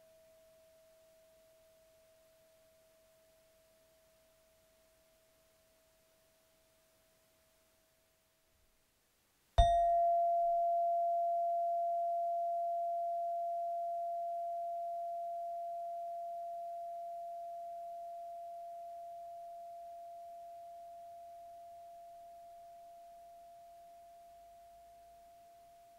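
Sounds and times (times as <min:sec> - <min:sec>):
metal chime ringing: 0:09.6 - 0:10.8.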